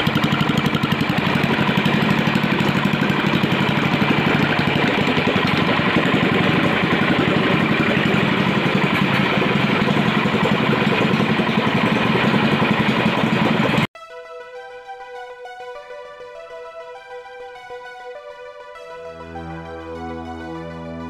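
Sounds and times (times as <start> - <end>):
petrol engine running: 0.0 - 13.9, 19.0 - 21.0.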